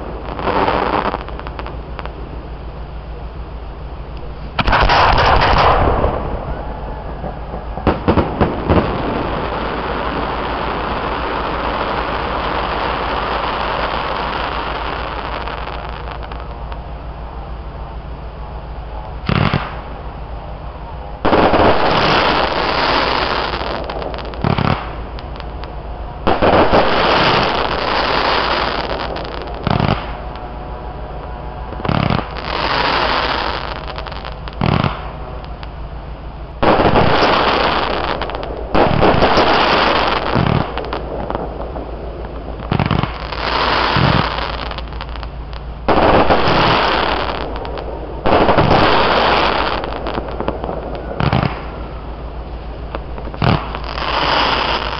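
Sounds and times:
fireworks bangs: 0.0s - 54.9s.

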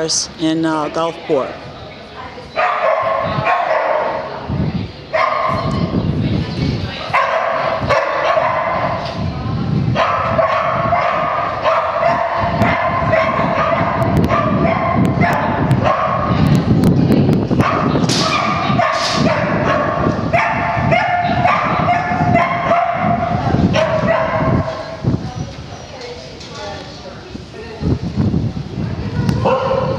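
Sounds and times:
dog barking: 2.6s - 4.3s, 5.1s - 5.8s, 7.1s - 9.0s, 10.0s - 16.4s, 17.6s - 24.9s, 29.4s - 29.9s.

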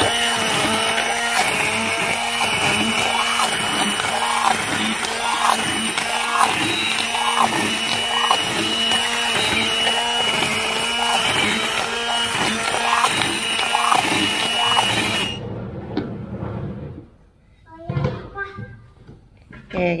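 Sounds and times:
hand blender motor running: 0.0s - 15.4s.

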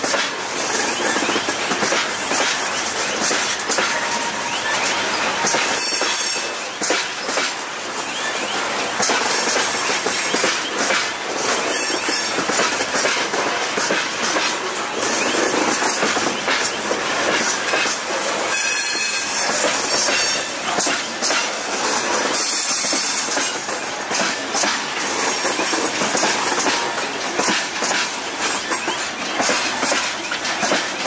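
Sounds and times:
wheels clattering over rail joints: 0.0s - 31.0s
high wheel squeal: 18.5s - 20.6s.

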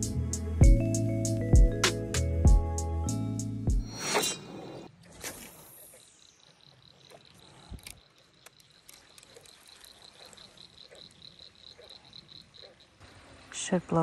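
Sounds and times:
insect chirping: 4.0s - 13.8s.

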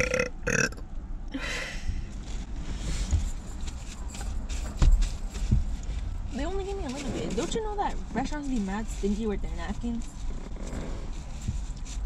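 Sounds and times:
low steady rumble: 0.0s - 12.0s
knocks and thumps inside a car: 2.7s - 12.0s.

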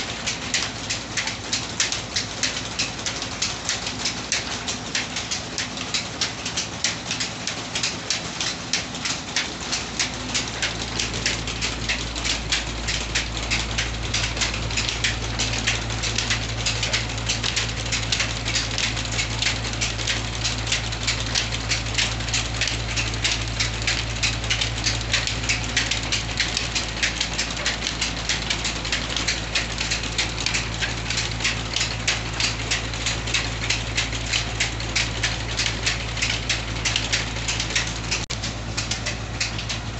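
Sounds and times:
belts and pulleys ticking: 0.0s - 39.9s.

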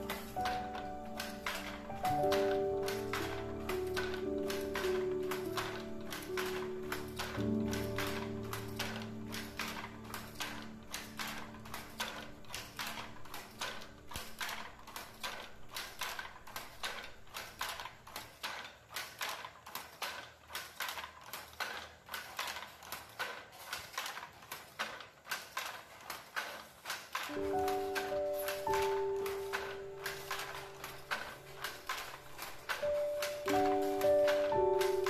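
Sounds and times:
background music: 0.0s - 17.6s, 27.3s - 35.0s
wooden handloom clacking: 0.0s - 35.0s.

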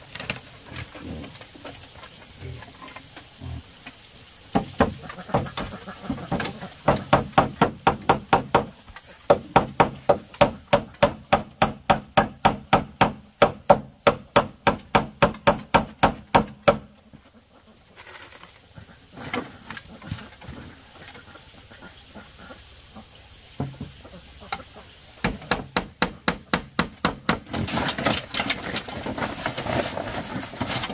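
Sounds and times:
hammer striking bamboo pole: 6.3s - 8.7s, 9.3s - 16.9s, 25.2s - 27.6s.

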